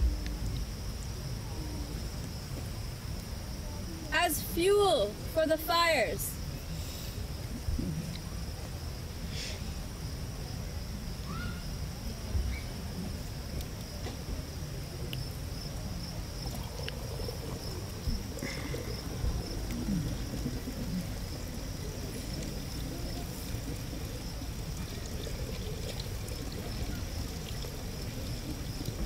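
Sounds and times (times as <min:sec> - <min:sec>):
water pouring and splashing into pail: 0:16.4 - 0:29.0.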